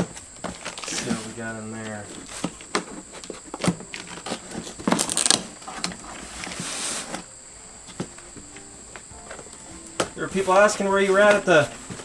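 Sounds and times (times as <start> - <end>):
cardboard flaps scraping and rustling: 0.0 - 7.3, 9.3 - 12.0
knife slitting packing tape: 4.1 - 7.1.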